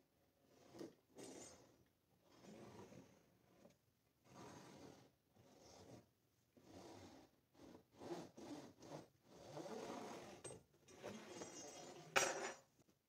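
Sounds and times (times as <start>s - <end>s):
steel rod scraping through wood: 6.6s - 12.7s.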